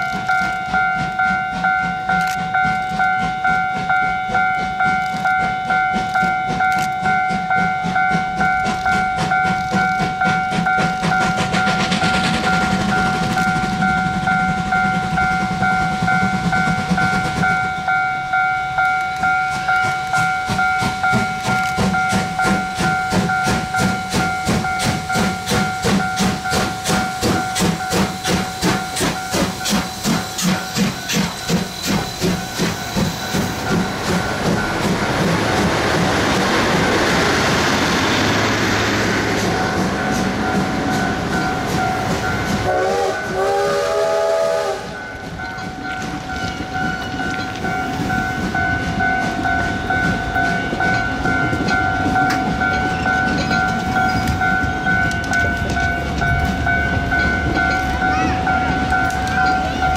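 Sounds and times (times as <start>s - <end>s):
steady high tone: 0.0s - 59.9s
steam locomotive chuffing: 0.0s - 59.9s
train wheels clattering: 0.0s - 59.9s
steam hissing: 7.3s - 18.0s, 19.2s - 55.0s.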